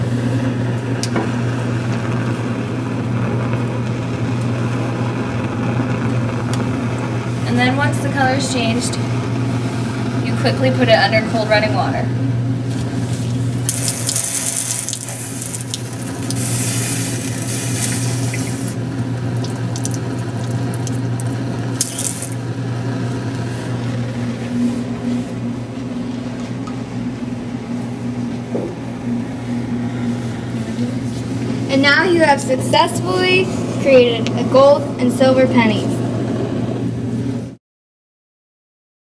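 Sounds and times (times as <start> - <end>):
steady low hum: 0.0 - 37.6
water splashing into a sink: 13.7 - 16.5, 19.4 - 22.4
water running from a faucet: 13.7 - 22.4.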